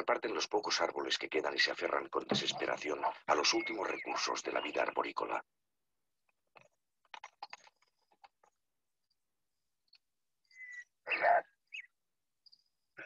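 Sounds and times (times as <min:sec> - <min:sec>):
short clicks and rustles: 0:06.3 - 0:08.7.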